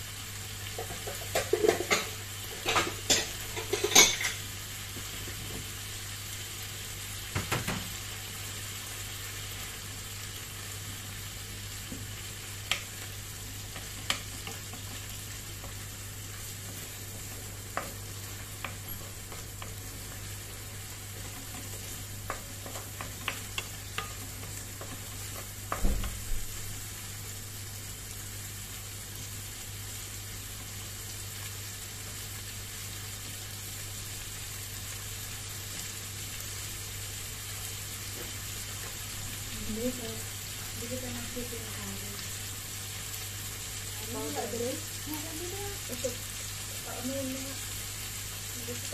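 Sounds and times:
meat and onions sizzling in a pan: 0.0 - 48.9.

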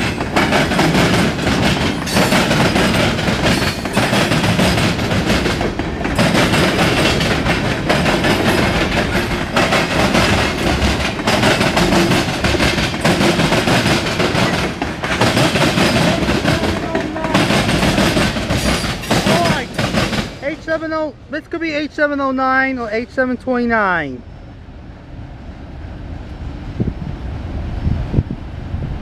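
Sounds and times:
train wheels clattering on rails: 0.0 - 21.0.

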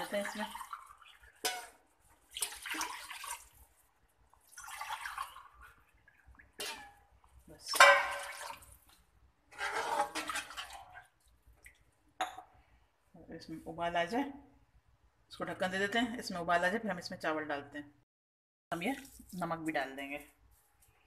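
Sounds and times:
water splashing into metal pot: 0.0 - 11.9.

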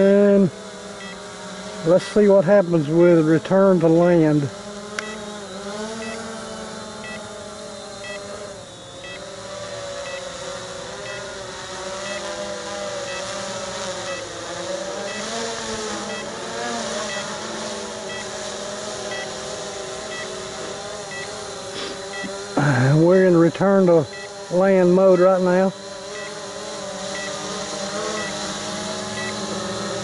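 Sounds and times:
drone motors whining: 0.0 - 30.0
short high beeps: 6.0 - 6.2, 7.0 - 7.2, 8.0 - 8.2, 10.1 - 10.3, 17.1 - 17.3, 24.1 - 24.4, 27.1 - 27.4, 29.2 - 29.4.

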